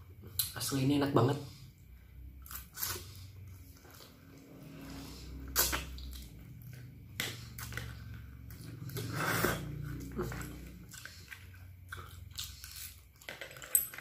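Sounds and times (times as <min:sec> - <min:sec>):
low hum: 0:01.6 - 0:12.4
chewing noodles: 0:02.4 - 0:14.0.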